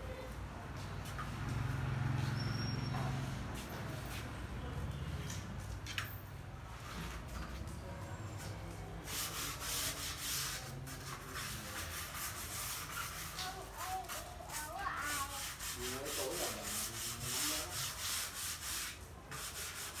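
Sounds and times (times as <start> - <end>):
sponge pad rubbing wooden plank: 9.1 - 20.0.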